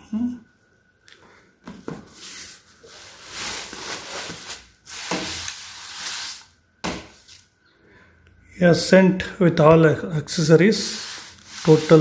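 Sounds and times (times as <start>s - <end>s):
laptop rubbing on bubble wrap: 10.8s - 12.0s.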